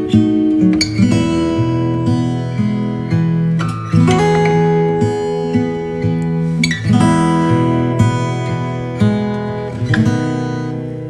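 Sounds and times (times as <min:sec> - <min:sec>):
guitar strumming chords: 0:00.0 - 0:11.0.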